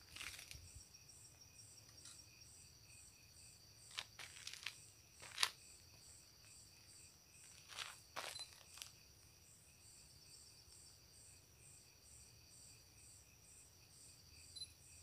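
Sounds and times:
footsteps crunching on dirt: 0.0s - 0.7s, 3.8s - 9.1s
insects chirping: 0.0s - 15.0s.

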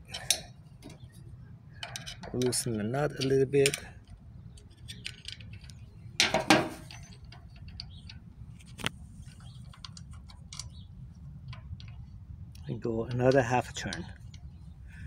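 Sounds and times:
hand tools tapping metal fitting: 1.8s - 3.9s.

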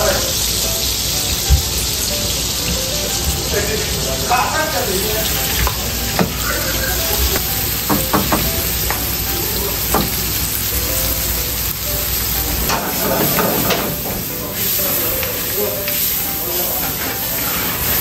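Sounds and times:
onions sizzling in a wok: 0.0s - 18.0s
wooden spatula scraping a wok: 16.8s - 18.0s.

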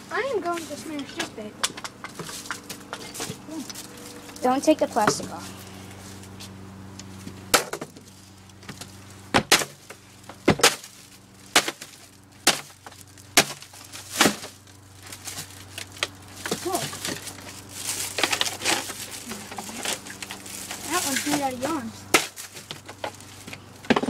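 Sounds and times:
plastic crackling and crushing: 7.6s - 24.0s.

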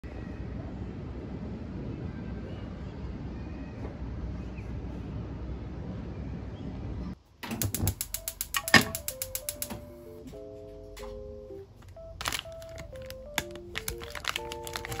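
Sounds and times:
city ambience: 0.0s - 15.0s
gas stove igniter ticking: 7.4s - 10.1s
soft music notes: 8.3s - 15.0s.

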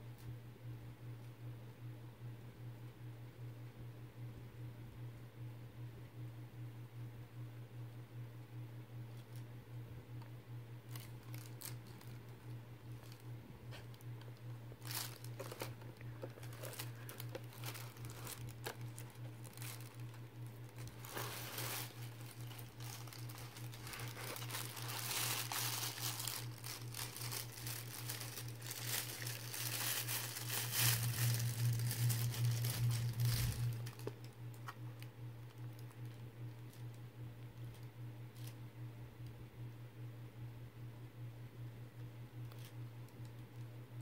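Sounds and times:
low steady hum: 0.0s - 44.0s
plastic bags crinkling: 10.9s - 34.8s.

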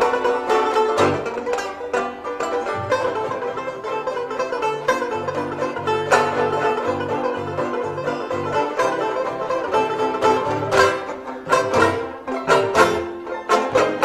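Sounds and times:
bluegrass string music: 0.0s - 14.0s.

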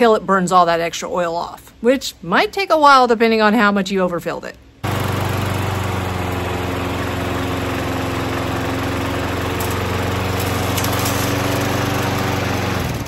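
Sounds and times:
lawn mower engine running: 4.8s - 13.0s.

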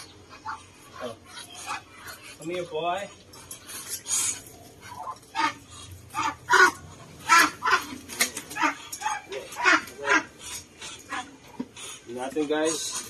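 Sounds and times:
duck wings flapping: 7.3s - 10.0s.

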